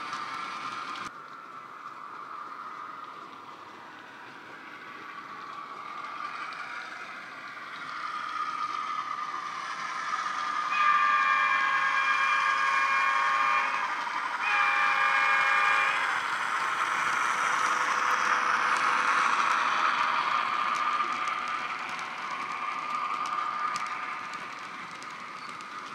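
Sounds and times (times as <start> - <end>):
train horn blasts: 10.7 - 16.1.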